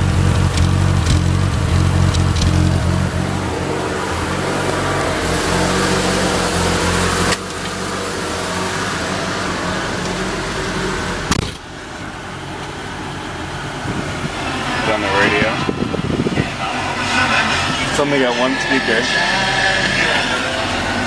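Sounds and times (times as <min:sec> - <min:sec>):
car engine idling: 0:00.0 - 0:21.0
car door shutting: 0:11.3 - 0:11.7.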